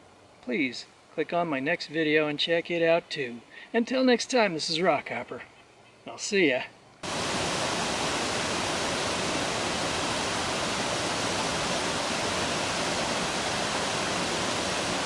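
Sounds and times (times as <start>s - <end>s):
waterfall rushing: 7.0s - 15.0s.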